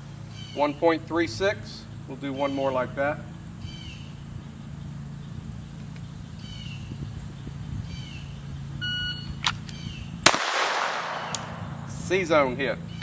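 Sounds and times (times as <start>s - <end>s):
bird chirping: 0.0s - 10.2s, 11.2s - 13.0s
low hum: 0.0s - 13.0s
sharp click: 11.1s - 11.6s.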